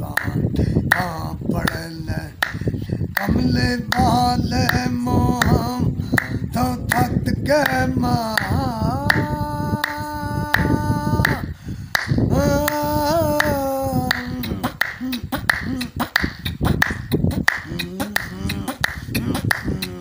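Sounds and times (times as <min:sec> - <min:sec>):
man singing unaccompanied: 0:00.0 - 0:20.0
hands clapping: 0:00.1 - 0:01.1, 0:08.4 - 0:10.0, 0:10.6 - 0:11.4, 0:12.0 - 0:12.8, 0:13.4 - 0:20.0.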